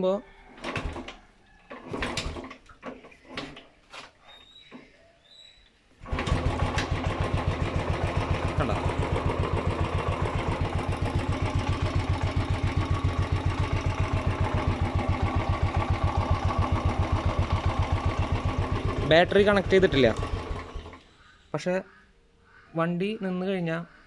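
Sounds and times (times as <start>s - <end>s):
motorcycle engine kick-started: 0.6s - 3.7s, 6.0s - 21.0s
motorcycle engine idling: 6.0s - 21.0s.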